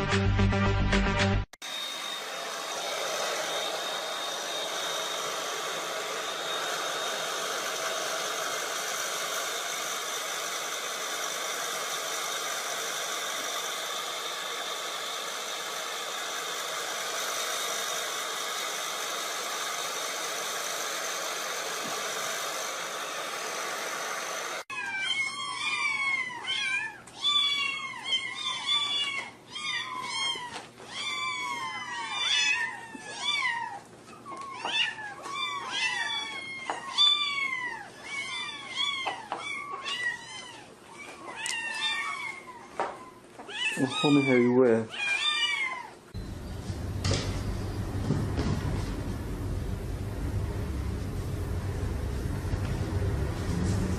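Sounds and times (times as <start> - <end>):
hair dryer blowing: 1.6 - 24.7, 46.1 - 53.9.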